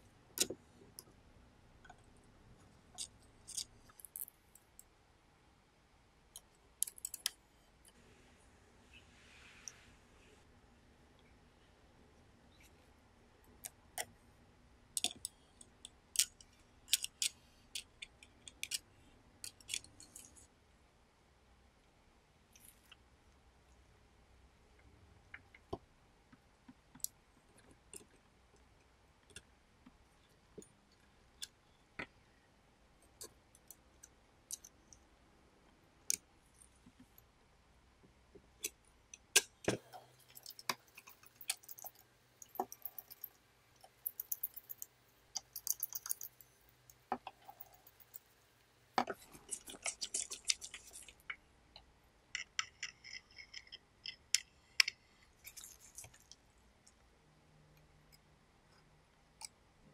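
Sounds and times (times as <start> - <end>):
clicks and taps of parts: 15.0 - 20.3, 38.0 - 48.3, 49.0 - 56.4.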